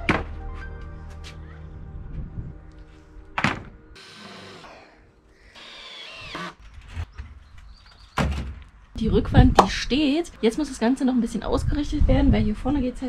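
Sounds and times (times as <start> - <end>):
background music: 0.0 - 6.4
sharp wooden thunk: 3.4 - 3.8, 8.1 - 8.7
cordless drill whining: 4.0 - 4.9, 5.5 - 6.6.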